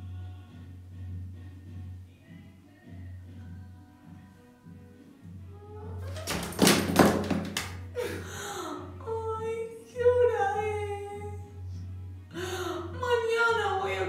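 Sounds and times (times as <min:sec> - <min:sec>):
quiet background music: 0:00.0 - 0:14.0
woman crying: 0:07.9 - 0:11.1.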